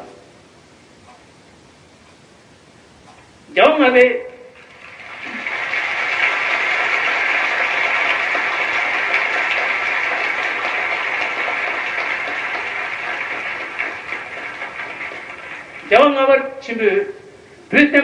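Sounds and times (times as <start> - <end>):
audience applauding: 4.5 - 16.5.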